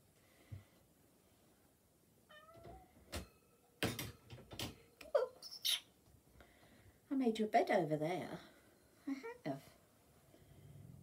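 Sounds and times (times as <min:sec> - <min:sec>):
cat meowing: 0:02.3 - 0:02.9.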